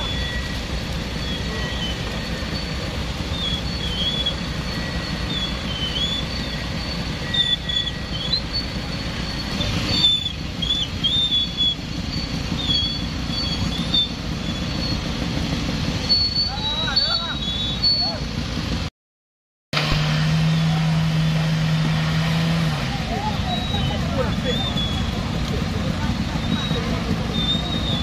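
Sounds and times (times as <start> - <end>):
high wavering whistle-like tones: 0.0 - 15.2, 16.0 - 18.3, 23.1 - 28.0
engines idling in traffic: 0.0 - 18.9, 19.8 - 28.0.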